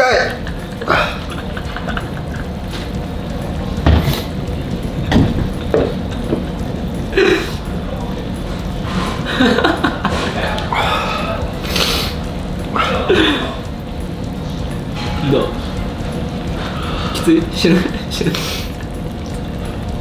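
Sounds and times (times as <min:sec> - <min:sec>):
liquid and dish sounds: 0:00.0 - 0:20.0
steady low hum: 0:00.0 - 0:20.0
pained breaths and groans: 0:10.5 - 0:13.6.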